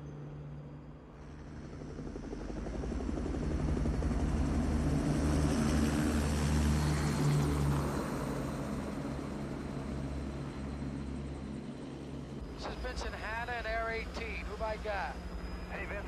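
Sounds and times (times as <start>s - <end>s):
helicopter rotor beating: 1.2s - 16.0s
low engine drone: 10.8s - 16.0s.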